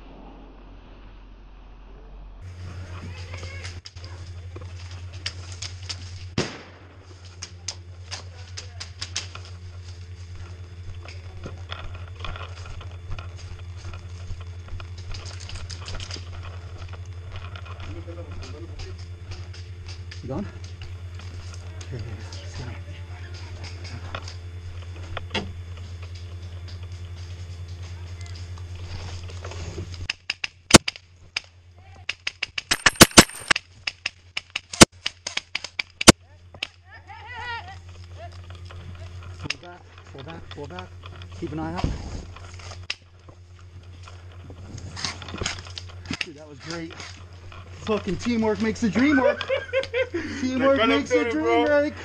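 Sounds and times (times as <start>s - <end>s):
steady low hum: 0.0s - 52.0s
airsoft rifle shots: 6.4s - 7.0s, 32.6s - 33.6s.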